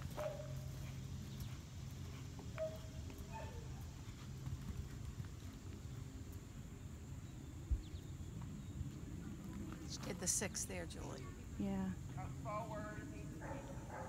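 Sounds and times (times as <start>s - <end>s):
hoofbeats on sand: 0.0s - 6.0s.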